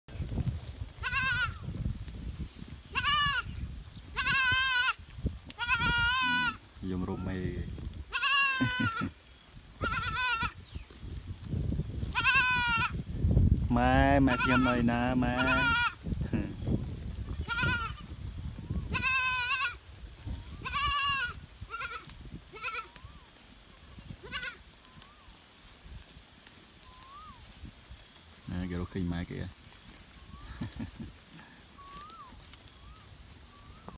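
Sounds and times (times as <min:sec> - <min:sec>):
goats bleating: 0:01.0 - 0:01.6, 0:02.9 - 0:03.5, 0:04.1 - 0:05.0, 0:05.6 - 0:06.6, 0:08.1 - 0:09.2, 0:09.8 - 0:10.6, 0:12.1 - 0:13.0, 0:14.2 - 0:16.0, 0:17.4 - 0:18.0, 0:18.9 - 0:19.8, 0:20.6 - 0:23.0, 0:24.2 - 0:24.6.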